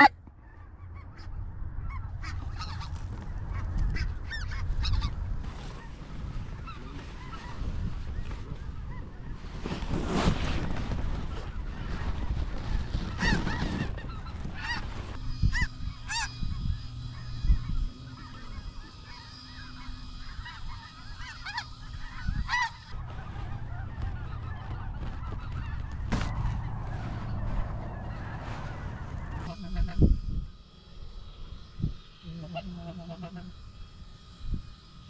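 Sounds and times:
geese honking: 0.0 - 35.0
steady low rumble: 10.7 - 34.7.

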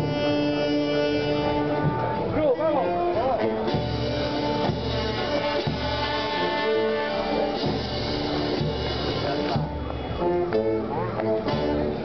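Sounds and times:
slow solemn instrumental music: 0.0 - 12.0.

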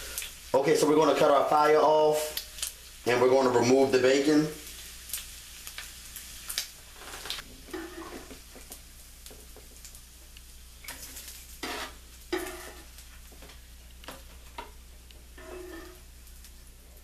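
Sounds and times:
grease sizzling and popping in pan: 0.0 - 3.3, 3.9 - 17.0
utensil scraping and tapping pan: 7.6 - 9.9, 11.6 - 16.1.

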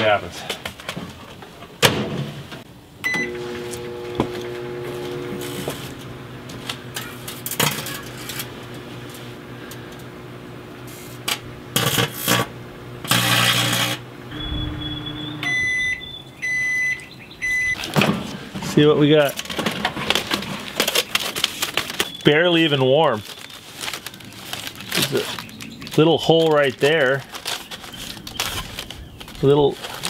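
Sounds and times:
microwave keypad beeps: 3.0 - 3.4, 14.3 - 17.8
microwave oven humming: 3.0 - 18.0
foil sparking and crackling: 10.8 - 14.1, 18.7 - 30.0.

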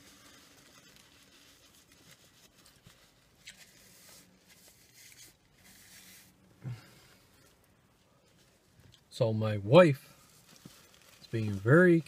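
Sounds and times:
paper napkin rustling: 0.0 - 6.4.

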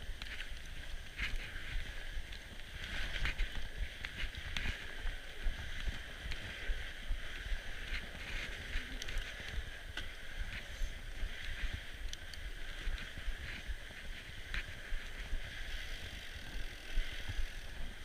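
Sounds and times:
bike clicks and rattles: 0.0 - 18.0
bike tyres hissing on snow: 0.0 - 18.0.

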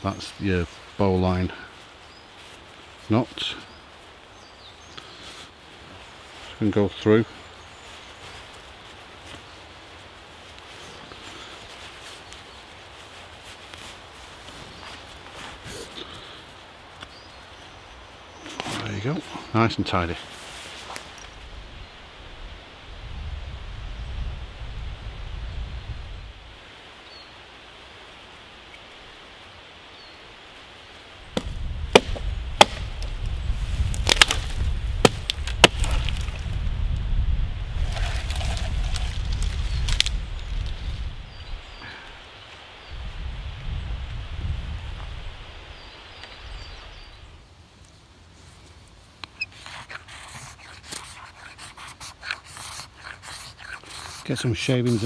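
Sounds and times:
soft outdoor hiss: 0.0 - 55.0
knife chopping wood: 31.4 - 33.1, 33.9 - 36.3.

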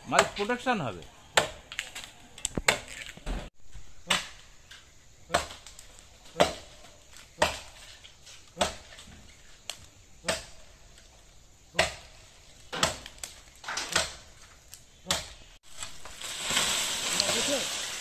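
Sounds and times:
blade chopping into palm trunk: 12.7 - 14.2
steady hiss: 15.4 - 18.0.

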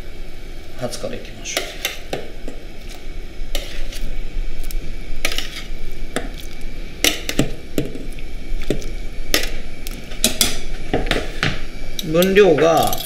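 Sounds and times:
metal tongs clinking on pot: 12.0 - 13.0.

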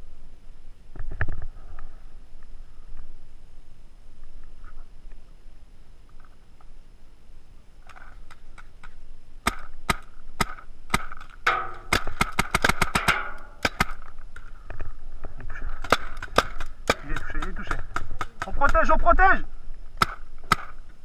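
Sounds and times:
paintball marker firing: 9.4 - 14.1, 20.0 - 20.8.

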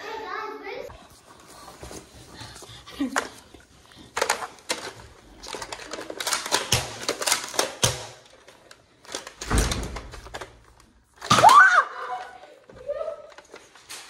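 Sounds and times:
plastic toy blaster clicks and clacks: 4.1 - 11.4.

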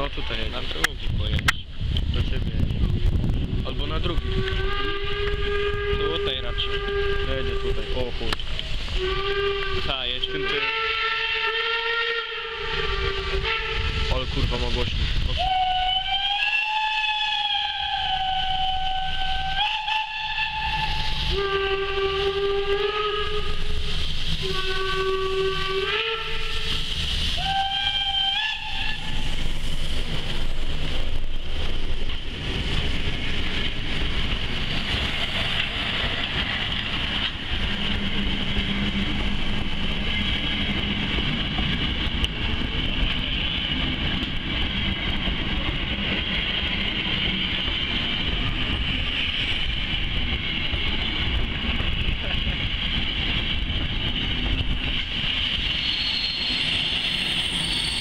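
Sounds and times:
rumble of train wheels: 0.0 - 58.0
steam locomotive whistle blasts: 4.2 - 7.9, 9.0 - 14.2, 15.4 - 29.4, 55.8 - 58.0
hiss of steam: 20.5 - 36.2.

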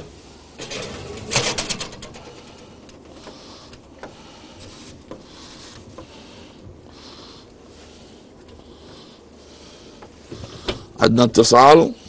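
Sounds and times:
steady low hiss: 0.0 - 12.0
faint clicks and knocks: 0.6 - 7.7.

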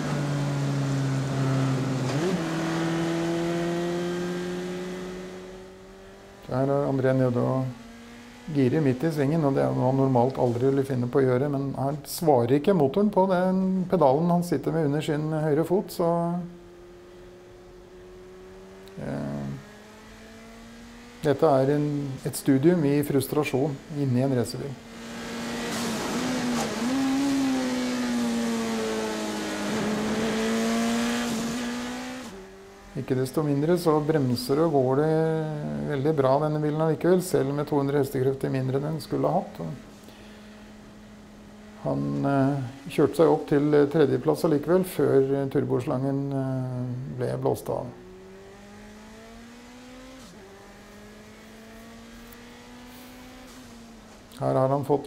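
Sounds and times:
racing engine under power: 0.0 - 55.0
racing car engine high note: 23.7 - 34.8.

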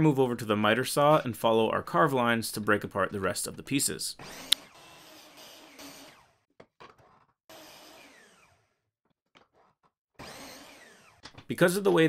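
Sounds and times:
saw motor winding down: 4.2 - 6.4, 7.5 - 8.8, 10.2 - 11.2.

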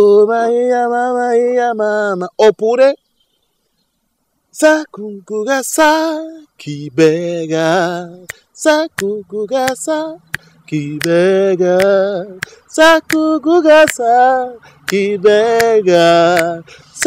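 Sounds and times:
man singing unaccompanied: 0.0 - 3.1, 4.5 - 17.0.

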